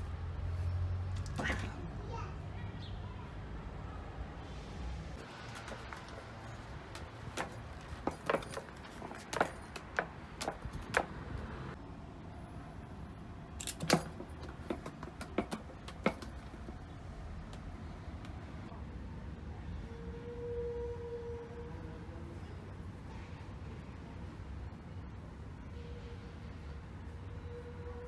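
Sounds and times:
cat scratching rope post: 0:05.2 - 0:11.8, 0:13.6 - 0:16.8.

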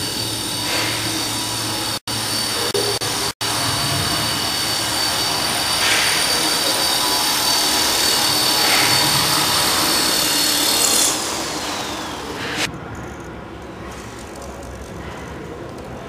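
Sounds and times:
rc helicopter motor whine: 0:00.0 - 0:12.7.

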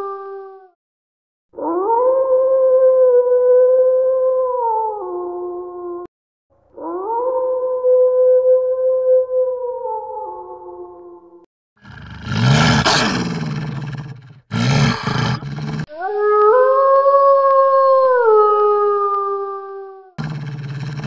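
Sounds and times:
wolf growling: 0:11.8 - 0:15.9, 0:20.2 - 0:21.0
wolf howling: 0:11.9 - 0:21.0.

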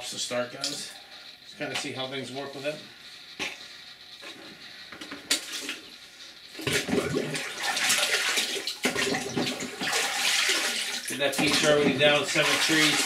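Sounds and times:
water pouring and splashing: 0:06.6 - 0:13.0.

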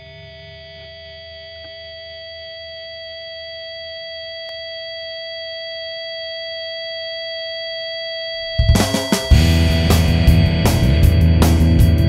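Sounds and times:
held electric guitar tone: 0:08.3 - 0:12.0.

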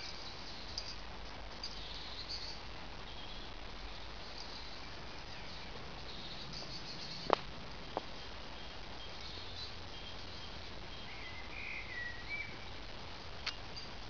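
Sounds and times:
low outdoor rumble: 0:00.0 - 0:14.0
faint high chirping: 0:01.6 - 0:07.4, 0:08.0 - 0:12.9.

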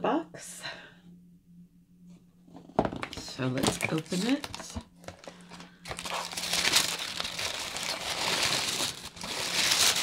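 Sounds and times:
packaging crinkling and rustling: 0:03.0 - 0:10.0.

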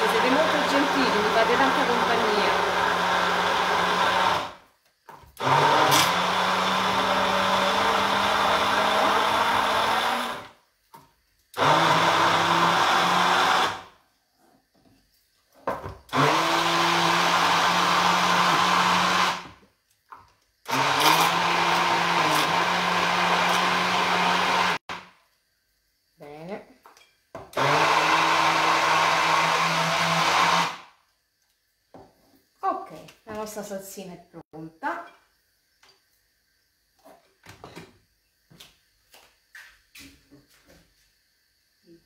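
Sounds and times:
immersion blender motor: 0:00.0 - 0:04.6, 0:05.4 - 0:10.6, 0:11.6 - 0:13.9, 0:16.1 - 0:19.5, 0:20.7 - 0:25.0, 0:27.6 - 0:30.9.

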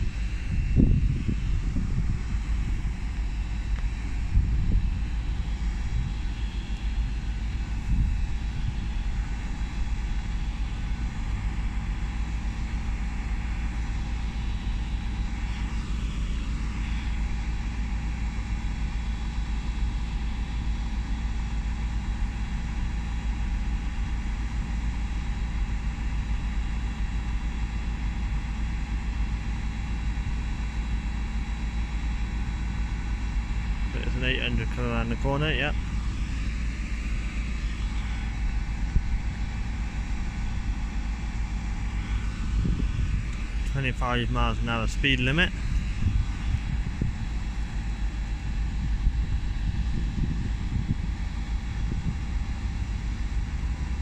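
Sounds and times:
train diesel engines droning: 0:01.6 - 0:26.1, 0:29.2 - 0:49.6, 0:51.3 - 0:54.0.

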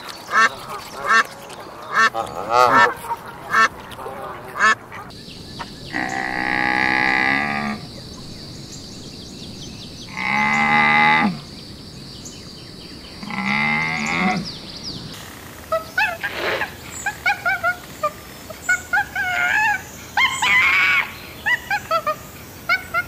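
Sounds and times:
camel bellowing moans: 0:05.9 - 0:07.9, 0:13.2 - 0:14.6.

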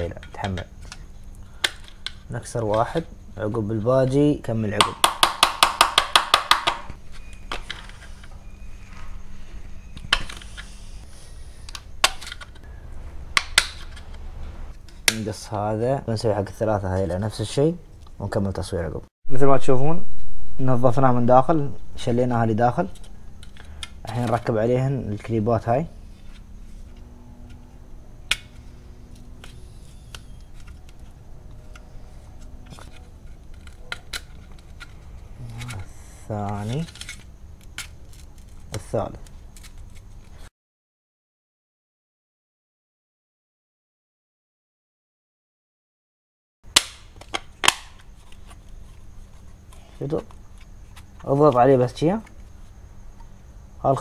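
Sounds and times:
plastic tabs clicking and snapping: 0:01.6 - 0:02.8
scrapes of handling: 0:28.5 - 0:40.5
plastic clips clicking: 0:46.7 - 0:48.1.

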